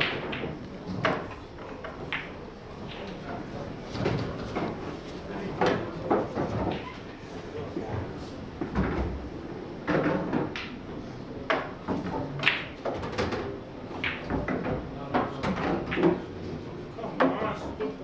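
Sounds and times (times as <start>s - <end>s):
pool balls clacking: 0.0s - 4.8s, 11.5s - 16.3s.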